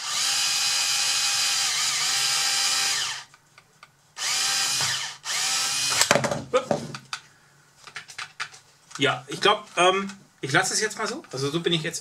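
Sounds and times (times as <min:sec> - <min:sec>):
electric screwdriver running: 0:00.0 - 0:03.3, 0:04.2 - 0:06.1.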